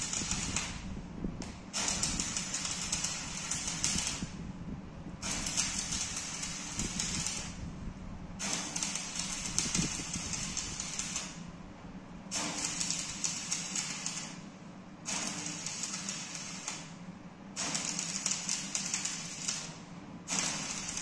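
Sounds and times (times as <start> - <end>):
welding arc crackling: 0.0 - 0.8, 1.8 - 4.3, 5.2 - 7.6, 8.4 - 11.4, 12.4 - 14.4, 15.1 - 16.9, 17.6 - 19.7, 20.3 - 21.0
steady low hum: 0.0 - 21.0.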